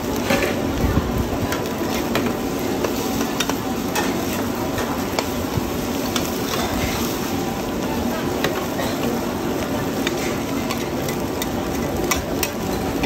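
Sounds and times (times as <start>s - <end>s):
omelette sizzling on a griddle: 0.0s - 13.0s
metal spatulas clicking on a pan: 1.5s - 5.3s, 6.1s - 6.8s, 10.0s - 13.0s.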